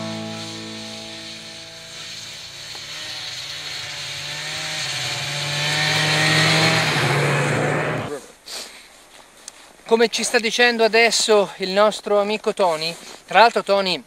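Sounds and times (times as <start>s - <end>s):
snowmobile engine at high revs: 0.0s - 8.1s.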